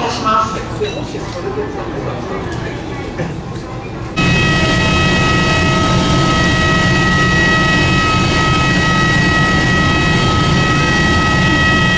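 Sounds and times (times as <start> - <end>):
jet engines droning: 3.9 - 11.9.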